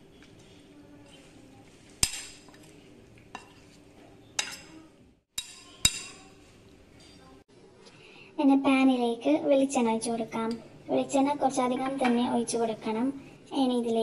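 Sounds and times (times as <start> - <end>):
spoon clinking against bowl: 5.4 - 6.3.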